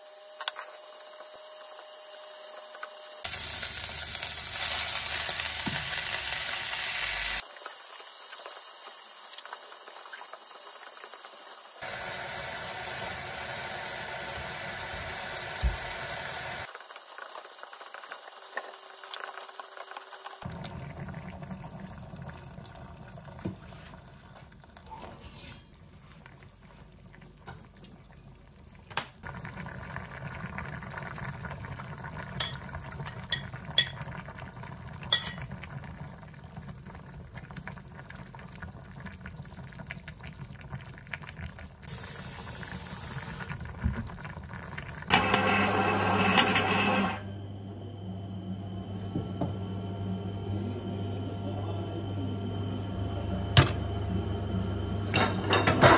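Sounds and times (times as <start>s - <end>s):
water pouring into pot: 3.2s - 25.0s, 25.7s - 45.8s
stew bubbling: 20.4s - 45.1s.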